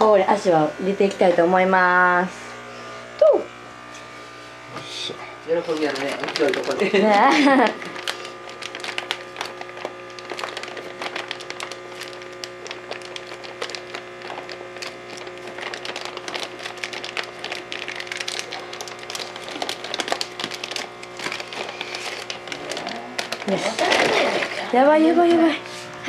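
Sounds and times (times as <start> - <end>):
steady low hum: 0.0 - 26.0
plastic bag crinkling: 5.5 - 26.0.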